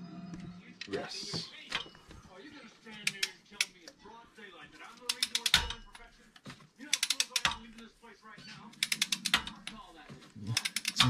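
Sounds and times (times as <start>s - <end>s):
ratchet wrench clicking: 5.0s - 6.0s, 6.9s - 7.8s, 8.8s - 9.8s, 10.6s - 11.0s.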